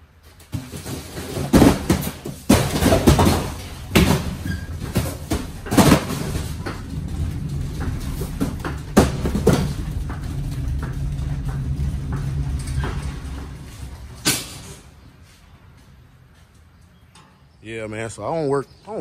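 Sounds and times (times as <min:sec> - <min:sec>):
cardboard boxes thudding on floor: 0:00.4 - 0:06.8
metal cages rattling: 0:00.5 - 0:15.2
steady low rumble: 0:01.6 - 0:16.8.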